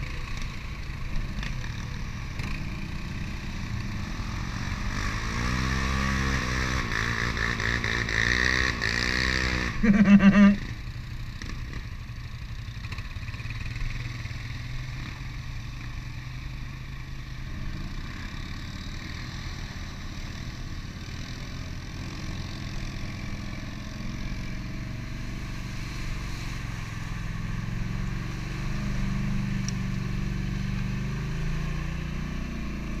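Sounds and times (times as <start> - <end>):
quad engine revving: 4.0 - 10.8.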